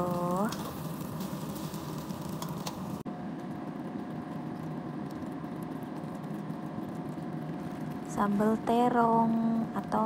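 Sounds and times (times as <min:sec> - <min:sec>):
omelette sizzling in oil: 0:00.0 - 0:03.1
steady hum: 0:00.0 - 0:10.0.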